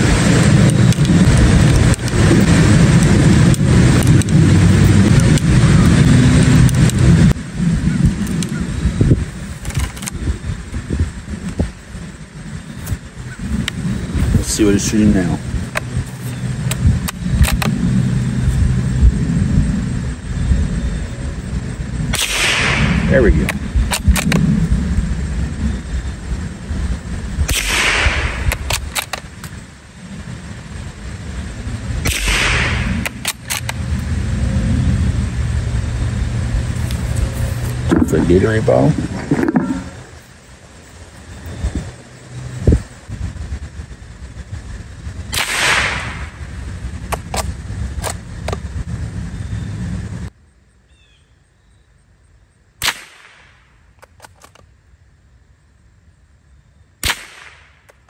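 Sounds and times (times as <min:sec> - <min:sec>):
low background rumble: 0:00.0 - 0:58.0
rifle shot with echo: 0:22.1 - 0:24.4, 0:27.5 - 0:29.1, 0:32.0 - 0:33.6, 0:45.4 - 0:46.3, 0:52.8 - 0:53.6, 0:57.0 - 0:57.8.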